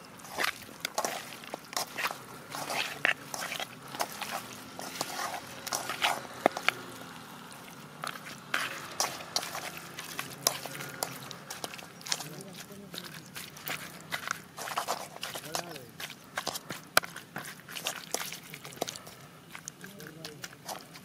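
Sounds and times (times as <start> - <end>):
wet squelching of kneaded chicken: 0.0 - 21.0
pieces scraping against metal pan: 0.2 - 6.9.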